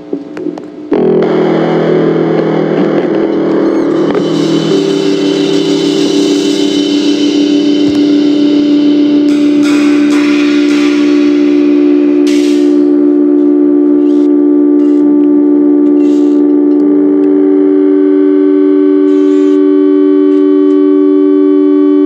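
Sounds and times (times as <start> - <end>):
heavy rock music: 0.9 - 20.3.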